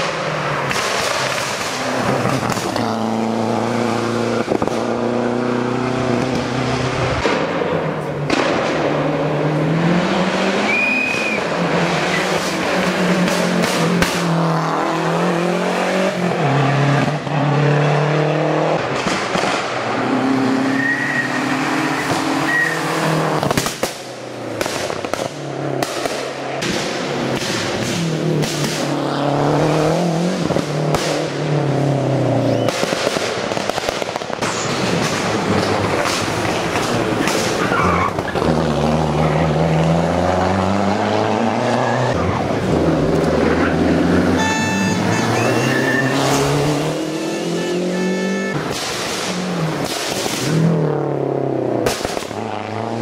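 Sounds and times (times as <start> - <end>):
rally car engine revving: 0.0 - 33.6, 34.2 - 53.0
exhaust pops and cracks: 51.8 - 52.4.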